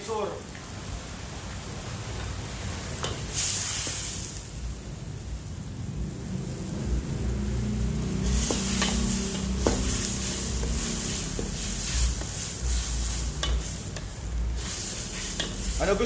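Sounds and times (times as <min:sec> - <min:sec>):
noodles sizzling in a wok: 0:00.2 - 0:16.0
steady low rumble: 0:04.6 - 0:16.0.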